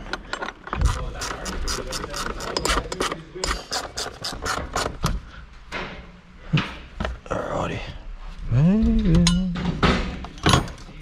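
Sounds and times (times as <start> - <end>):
ratchet clicking rapidly: 0.8 - 4.9.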